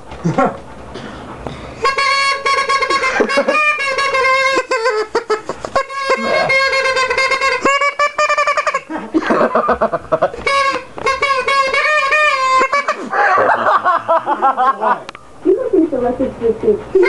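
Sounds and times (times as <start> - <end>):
plastic noisemaker honking: 1.8 - 5.2, 5.8 - 8.9, 10.4 - 13.4.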